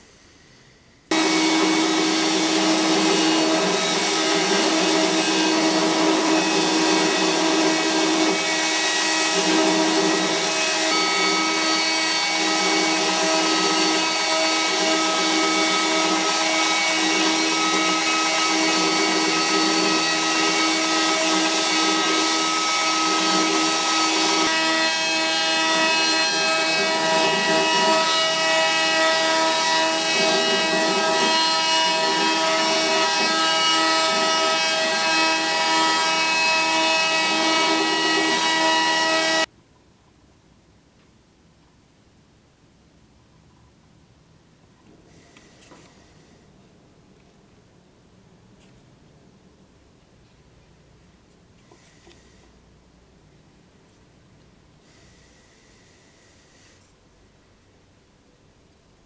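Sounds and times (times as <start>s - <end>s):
belt grinder hum: 1.1s - 39.5s.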